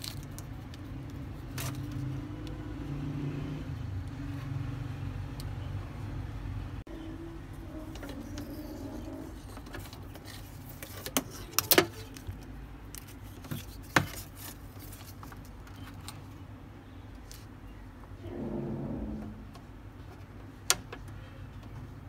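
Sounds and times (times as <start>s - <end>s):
low steady hum: 15.7s - 21.4s.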